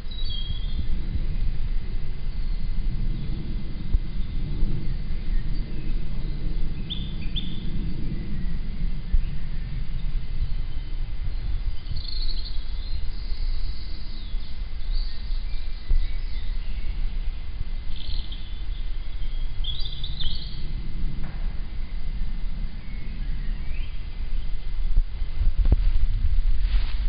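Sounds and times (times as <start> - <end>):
small songbirds singing: 0.0 - 25.3
wind buffeting microphone: 0.0 - 27.0.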